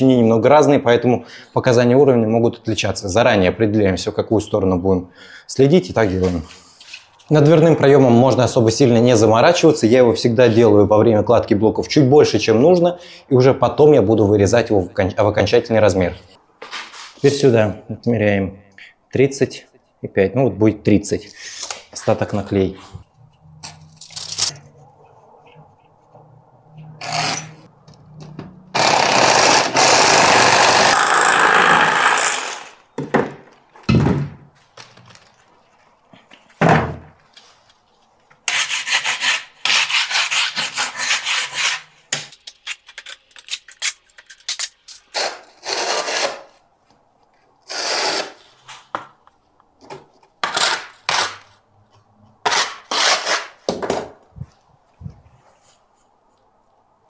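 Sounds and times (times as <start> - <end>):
hand saw cutting concrete block: 28.8 - 32.8, 38.5 - 41.8, 47.7 - 48.4, 52.5 - 53.6.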